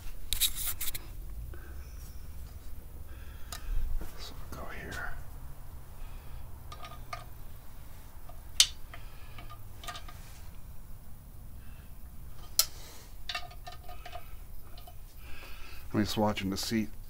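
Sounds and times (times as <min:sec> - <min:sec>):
sharp metal clicks: 0:06.7 - 0:07.4, 0:08.3 - 0:10.2.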